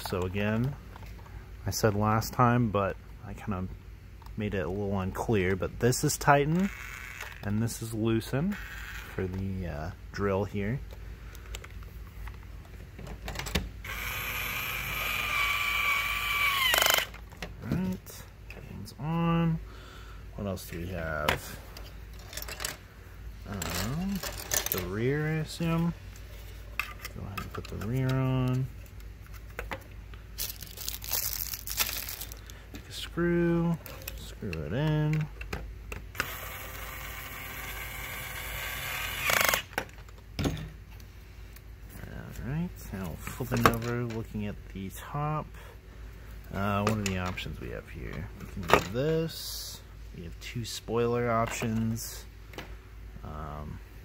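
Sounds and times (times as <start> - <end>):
toy drill motor whine: 6.6 - 7.4, 8.6 - 9.2, 13.8 - 17.2, 36.2 - 39.7.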